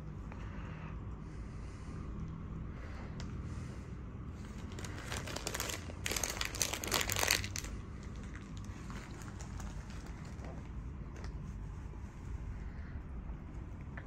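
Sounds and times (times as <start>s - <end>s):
plastic snack packet crinkling: 4.4s - 10.6s.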